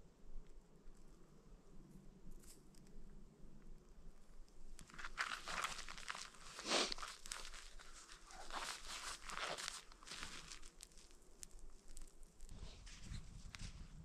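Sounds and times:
crunching and crinkling: 4.1s - 14.0s.

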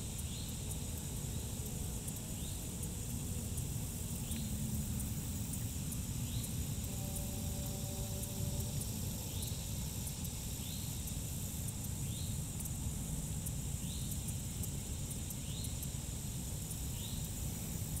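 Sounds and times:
insects droning: 0.0s - 18.0s
low steady rumble: 0.0s - 18.0s.

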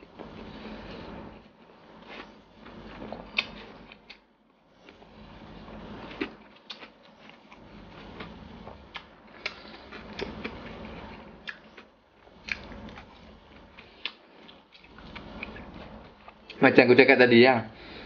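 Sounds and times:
man chewing food: 2.0s - 5.2s, 6.0s - 16.6s.

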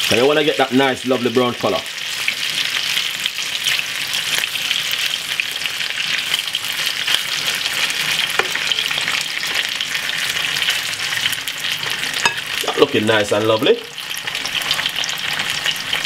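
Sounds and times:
chicken sizzling in oil: 0.0s - 16.0s.

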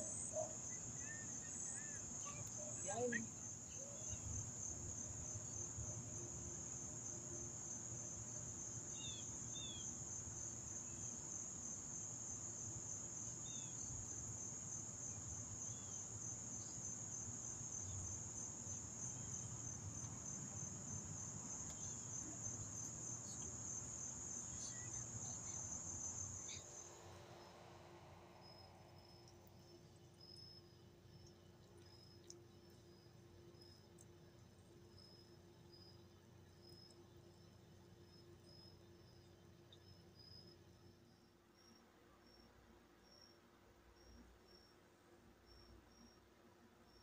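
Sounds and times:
insect chorus trilling: 0.0s - 31.3s.

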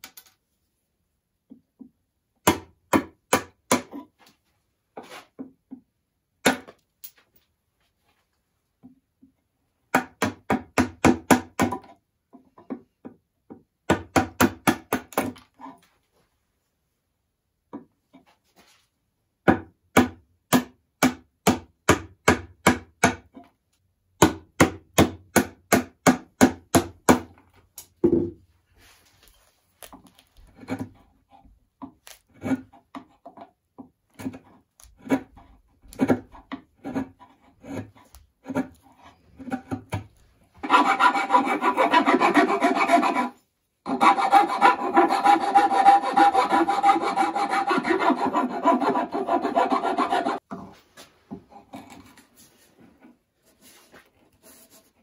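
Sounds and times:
chisel cutting wood: 30.4s - 33.5s, 34.1s - 50.5s
rasp filing wood: 34.2s - 39.8s, 40.6s - 50.5s.

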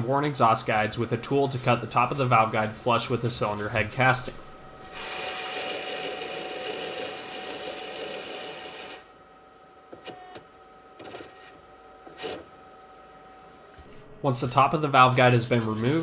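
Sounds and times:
faint machine whine: 0.0s - 16.0s
cutter grinding metal: 4.9s - 9.1s.

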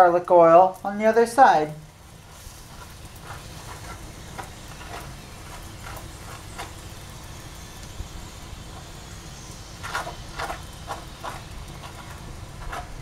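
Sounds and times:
bread sizzling in a pan: 0.0s - 13.0s
gas flame rumble: 0.0s - 13.0s
hand rubbing oil on bread: 2.0s - 7.2s, 8.3s - 13.0s.

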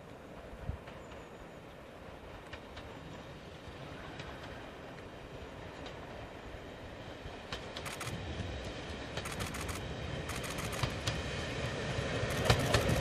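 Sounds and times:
diesel train running: 0.0s - 13.0s
wheels clicking over rail joints: 7.5s - 11.2s, 12.2s - 13.0s.

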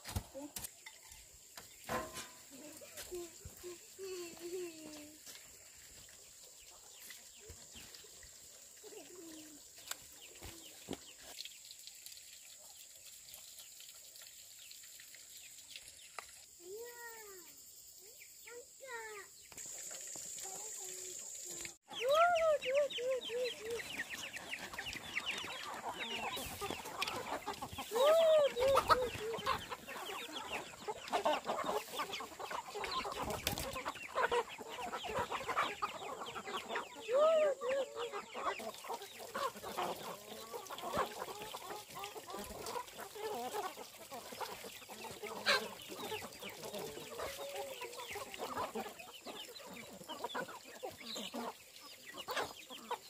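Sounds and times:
hen clucking: 21.9s - 53.0s.

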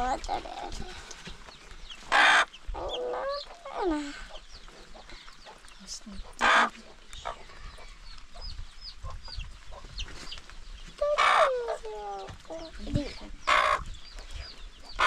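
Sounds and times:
chickens clucking: 0.0s - 15.0s
chicken squawks: 2.1s - 3.8s, 11.0s - 11.8s, 13.5s - 13.8s.

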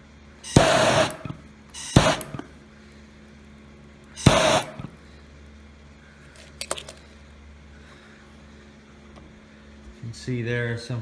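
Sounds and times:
gas torch flame hissing: 0.4s - 2.5s, 4.1s - 5.0s.

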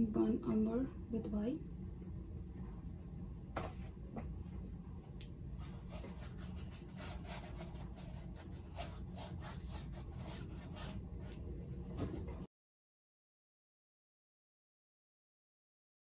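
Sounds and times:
low hum: 0.0s - 7.0s
paintbrush scratching thick paint: 5.6s - 11.3s.

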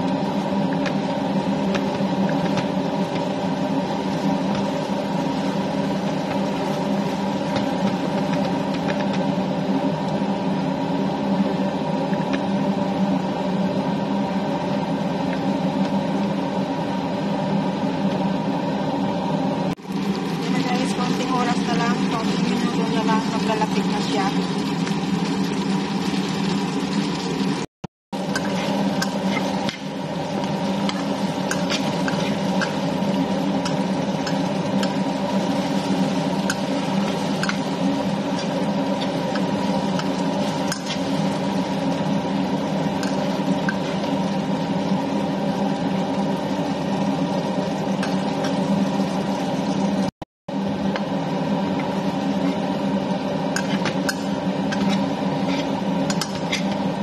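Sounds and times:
mixture sizzling in a wok: 0.0s - 57.0s
steady hum: 0.0s - 57.0s
metal spatula scraping wok: 28.2s - 44.3s, 52.3s - 52.7s, 53.5s - 57.0s.

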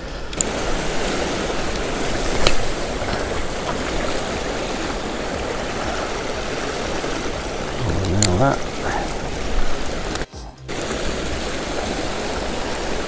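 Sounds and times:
sea water lapping on rocks: 0.0s - 13.0s.

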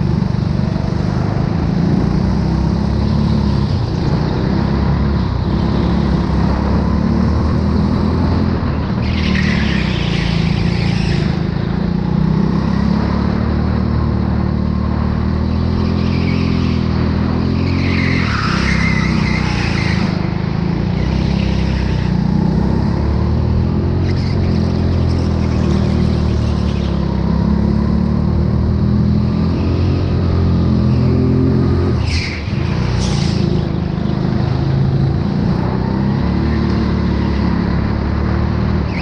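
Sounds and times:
go-kart engine running: 0.0s - 31.2s.

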